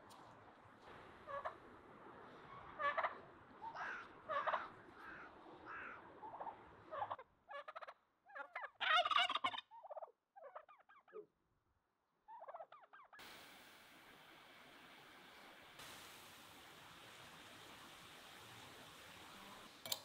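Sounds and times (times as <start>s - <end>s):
turkeys gobbling: 1.2s - 1.6s, 2.5s - 11.2s, 12.3s - 13.2s
steady hiss: 13.2s - 20.0s.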